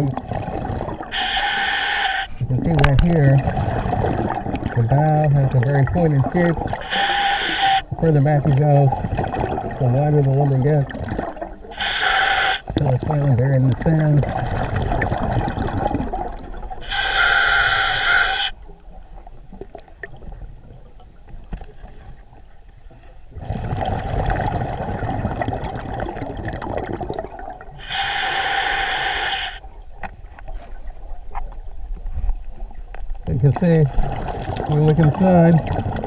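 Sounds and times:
exhaled bubbles rushing: 0:00.0 - 0:01.7, 0:02.4 - 0:18.7, 0:23.3 - 0:29.6, 0:33.4 - 0:36.0
diver breathing through regulator: 0:01.1 - 0:02.4, 0:06.8 - 0:07.9, 0:11.7 - 0:12.7, 0:16.8 - 0:18.6, 0:27.8 - 0:29.6.

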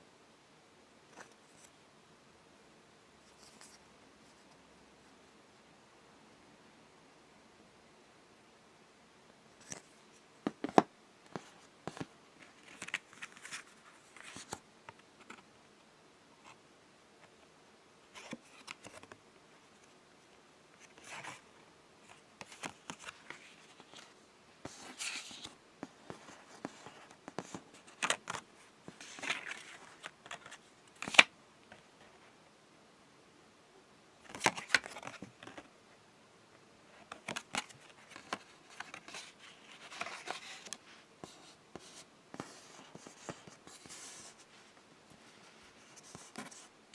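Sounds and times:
cards rustling and sliding: 0:09.6 - 0:14.6, 0:18.1 - 0:19.2, 0:20.8 - 0:21.4, 0:22.0 - 0:31.3, 0:34.2 - 0:35.7, 0:37.0 - 0:44.5, 0:45.3 - 0:46.7.

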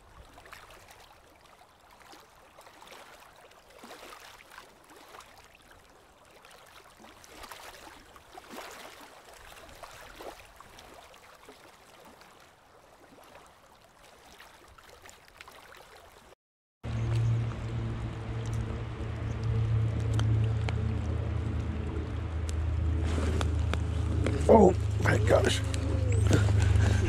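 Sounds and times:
shallow river water: 0:00.0 - 0:27.0.

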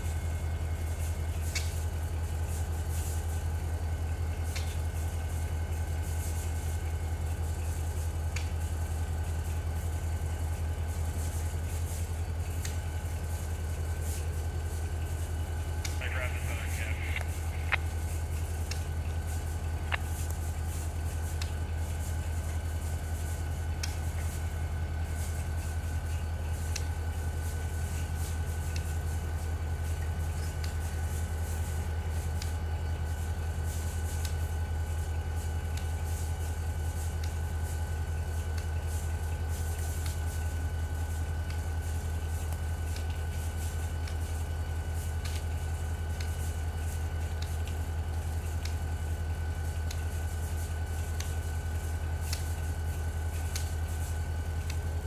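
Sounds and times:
locomotive engine idling: 0:00.0 - 0:35.8.

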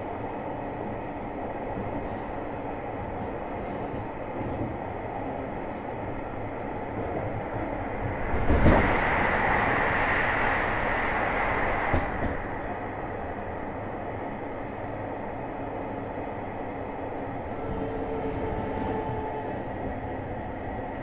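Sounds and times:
train running rumble: 0:00.0 - 0:15.1, 0:16.7 - 0:21.0.

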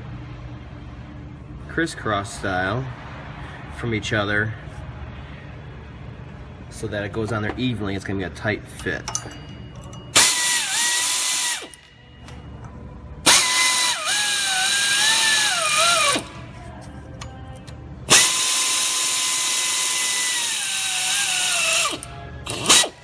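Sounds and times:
air ratchet whining: 0:09.1 - 0:11.9, 0:13.2 - 0:16.4, 0:17.1 - 0:23.0
exhaust air hissing: 0:10.1 - 0:11.9, 0:13.2 - 0:16.6, 0:18.0 - 0:23.0.

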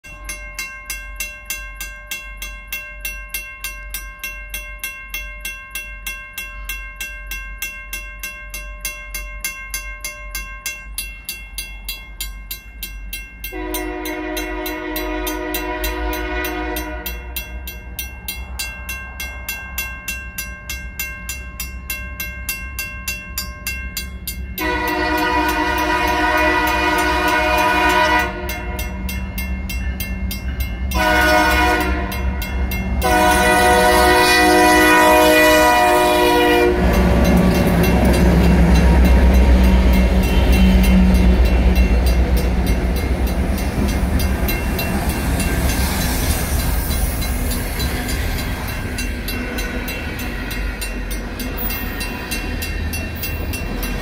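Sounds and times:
mechanical crossing bell ringing: 0:00.0 - 0:27.0, 0:27.8 - 0:54.0
diesel locomotive rumble: 0:11.8 - 0:54.0
locomotive air horn blasts: 0:13.5 - 0:17.4, 0:24.6 - 0:29.0, 0:30.9 - 0:32.4, 0:33.0 - 0:37.4, 0:39.7 - 0:41.7.

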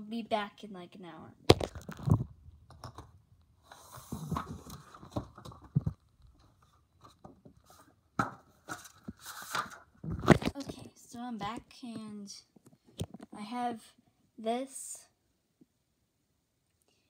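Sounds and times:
rustling and scraping handling noise: 0:01.6 - 0:13.3.

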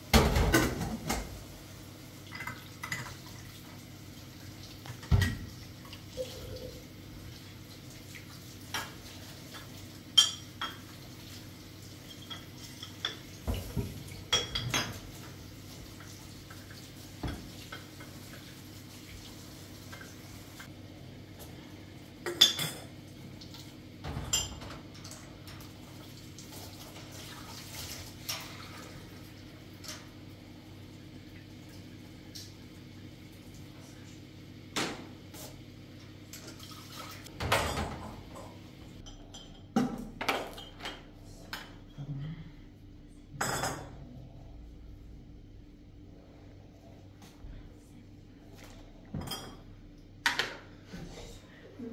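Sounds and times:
dishes and utensils clinking: 0:08.7 - 0:10.9, 0:12.0 - 0:15.2, 0:24.0 - 0:25.6, 0:37.4 - 0:42.0.

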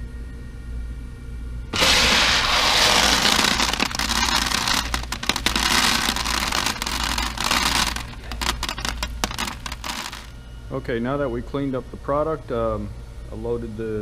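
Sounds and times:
popcorn kernels rattling in tub: 0:01.8 - 0:10.4.

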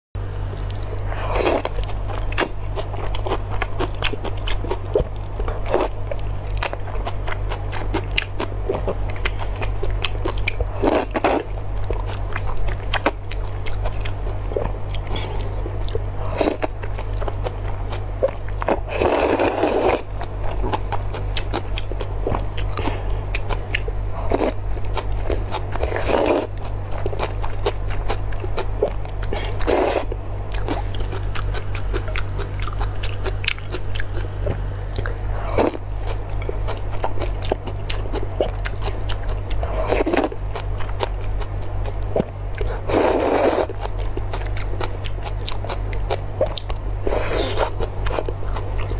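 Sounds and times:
steady low hum: 0:00.2 - 0:48.9
wet chewing clicks: 0:15.8 - 0:48.9
person slurping noodles: 0:18.7 - 0:20.1, 0:25.9 - 0:26.5, 0:29.4 - 0:30.1, 0:42.9 - 0:43.7, 0:47.0 - 0:48.2.

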